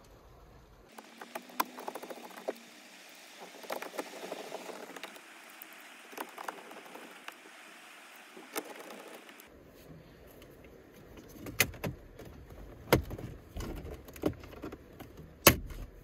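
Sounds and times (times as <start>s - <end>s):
steady hiss: 0.0s - 10.8s.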